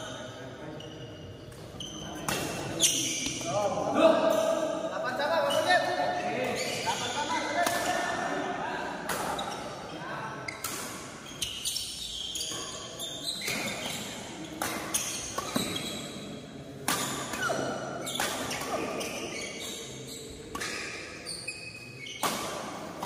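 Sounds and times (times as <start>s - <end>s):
shoes squeaking on court: 0.8s - 3.6s, 5.5s - 7.8s, 10.5s - 16.3s, 17.0s - 22.8s
racket hitting shuttlecock: 7.6s - 8.0s, 9.0s - 9.6s, 12.5s - 16.0s, 16.8s - 19.4s, 20.5s - 21.0s, 22.2s - 23.0s.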